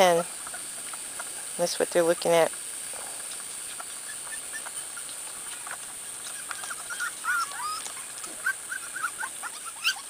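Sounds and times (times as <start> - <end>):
steady high hiss: 0.0 - 10.0
puppies whimpering: 3.5 - 10.0.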